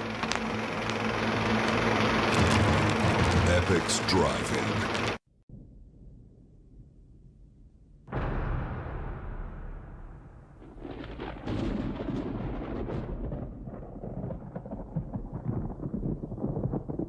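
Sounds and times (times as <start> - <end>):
dense crackle of cracks and pops: 0.0 - 5.0, 10.8 - 17.0
deep thunder-like rumble: 5.5 - 17.0.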